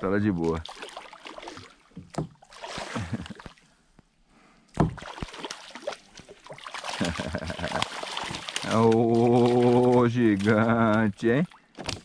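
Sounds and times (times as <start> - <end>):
fish thrashing and splashing: 0.6 - 3.6, 4.9 - 11.1.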